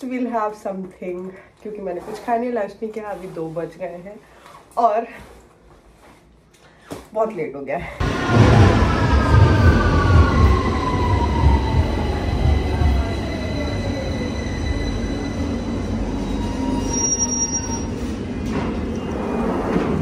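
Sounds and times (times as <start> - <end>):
underground train braking: 8.0 - 20.0.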